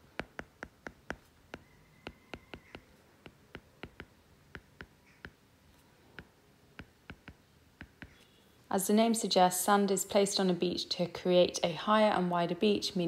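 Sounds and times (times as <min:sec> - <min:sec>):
stylus tapping on tablet screen: 0:00.0 - 0:05.4, 0:06.1 - 0:08.2.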